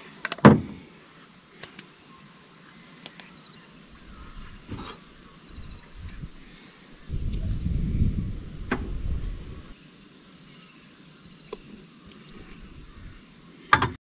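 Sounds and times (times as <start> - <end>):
low rumble: 7.0 - 9.7.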